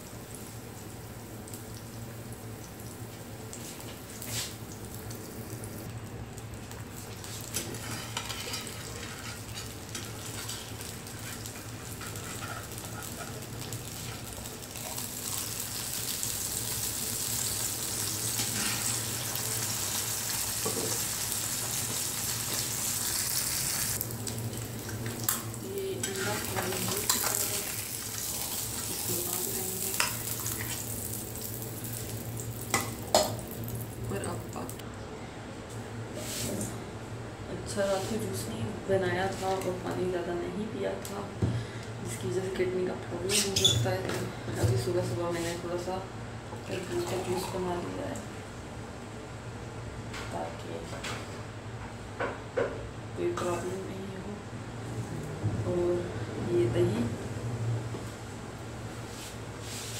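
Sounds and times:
eggs sizzling on griddle: 0.0s - 34.1s.

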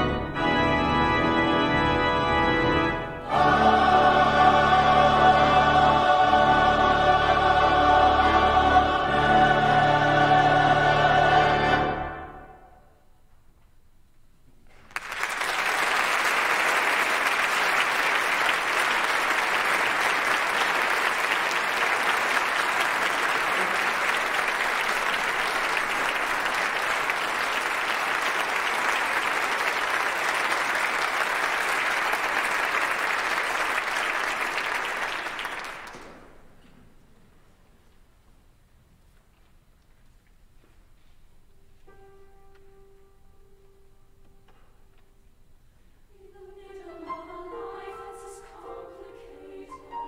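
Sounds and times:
audience applauding: 14.7s - 36.4s.

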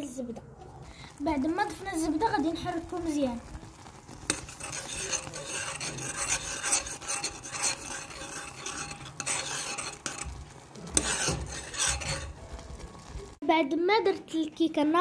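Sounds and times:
utensil scraping a pot: 3.7s - 13.1s.

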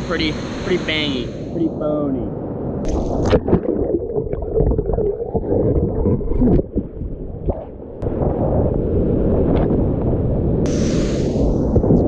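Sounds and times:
muffled underwater gurgling: 2.9s - 7.8s.

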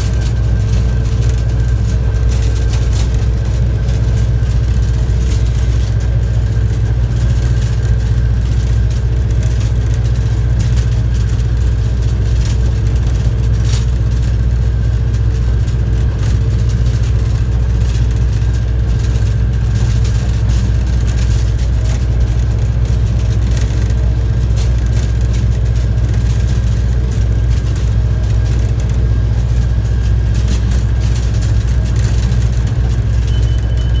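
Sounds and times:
train locomotive rumbling: 0.0s - 34.0s.

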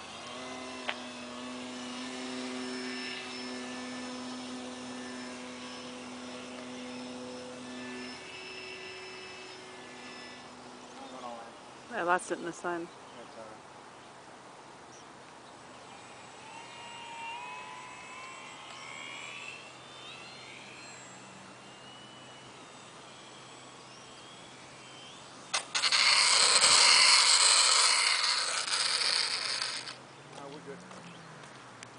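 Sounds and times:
model plane motor whine: 0.0s - 14.1s, 15.1s - 31.3s
plane passing with buzzing rush: 0.0s - 31.9s.

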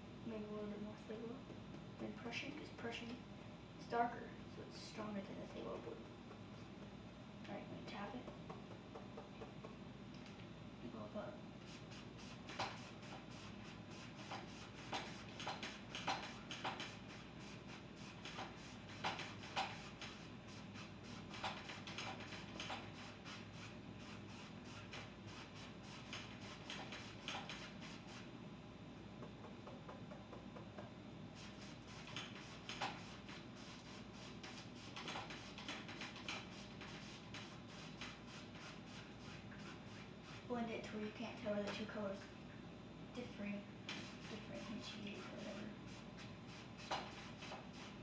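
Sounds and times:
low room hum: 0.0s - 48.0s
paint brush tapping on canvas: 8.2s - 9.8s, 29.2s - 30.9s.

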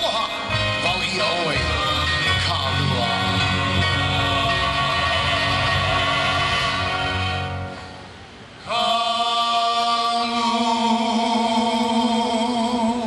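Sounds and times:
choir singing sustained chords: 1.2s - 13.0s.

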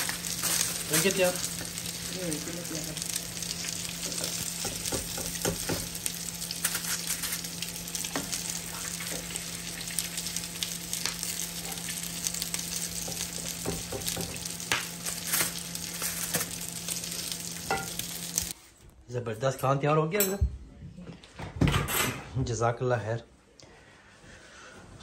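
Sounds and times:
chicken sizzling in hot oil: 0.0s - 18.6s.

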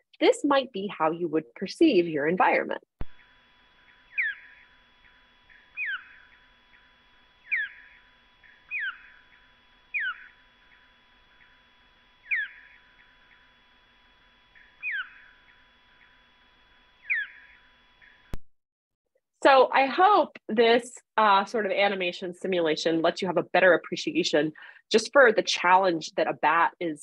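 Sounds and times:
downward-sweeping bat chirps: 4.1s - 11.6s, 12.2s - 13.4s, 14.5s - 16.1s, 17.0s - 18.1s.

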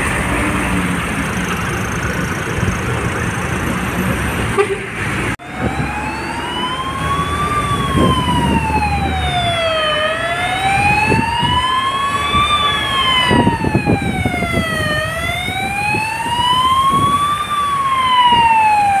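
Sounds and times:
traffic rumble through water: 0.0s - 19.0s
ambulance siren wailing: 5.3s - 19.0s.

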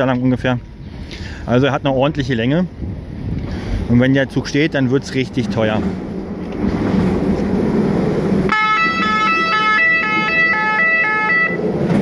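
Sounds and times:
alternating multi-tone warning horn: 8.5s - 12.0s.

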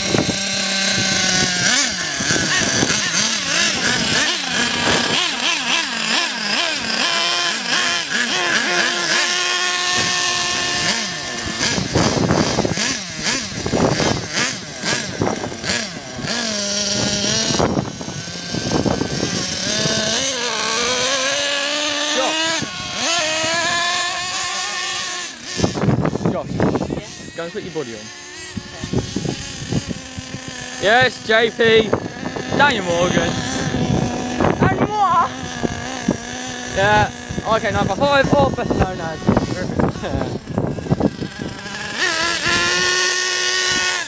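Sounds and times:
small engine revving in bursts: 0.0s - 44.0s.

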